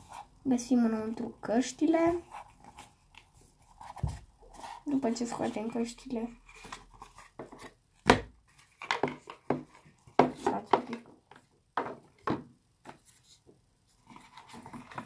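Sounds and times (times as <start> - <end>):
cardboard rustling: 1.8 - 11.5, 12.9 - 15.0
cardboard box taps and knocks: 3.9 - 4.2.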